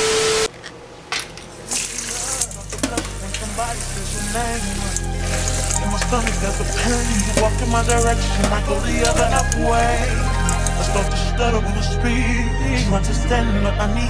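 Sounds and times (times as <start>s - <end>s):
tap water spraying: 1.7s - 11.1s
music with steady bass: 2.6s - 14.0s.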